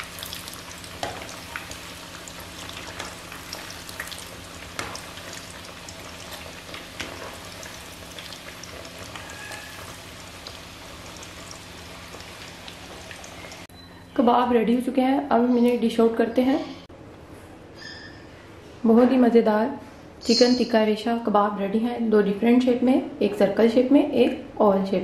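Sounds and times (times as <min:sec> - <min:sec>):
kebabs frying in hot oil: 0:00.0 - 0:13.7.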